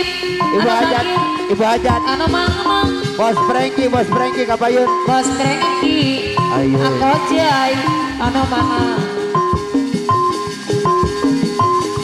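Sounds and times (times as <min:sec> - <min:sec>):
melody of held notes: 0:03.5 - 0:08.3.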